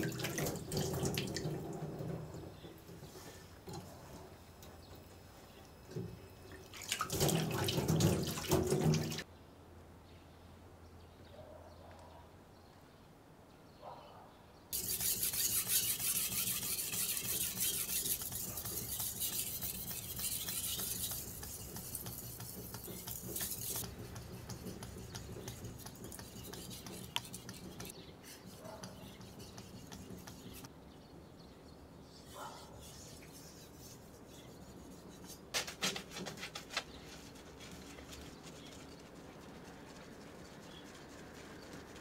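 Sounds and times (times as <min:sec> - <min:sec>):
knife scraping on whetstone: 0:14.8 - 0:30.7.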